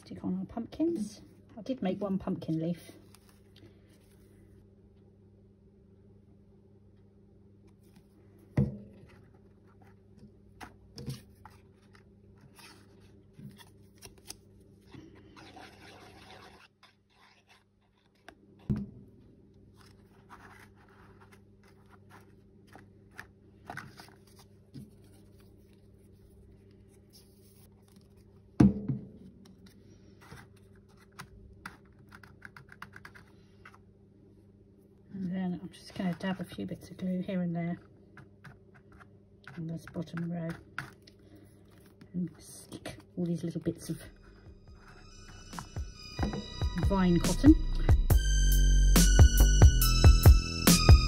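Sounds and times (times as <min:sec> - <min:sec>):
paper rustling: 0:02.9 - 0:04.4, 0:09.0 - 0:15.2, 0:19.7 - 0:28.5, 0:29.6 - 0:33.8.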